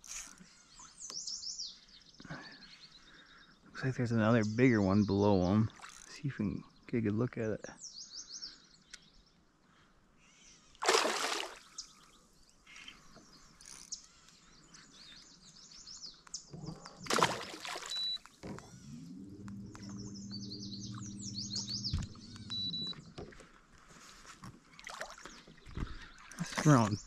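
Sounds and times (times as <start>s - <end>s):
songbirds chirping: 0.0s - 27.0s
steady low hum: 16.8s - 23.2s.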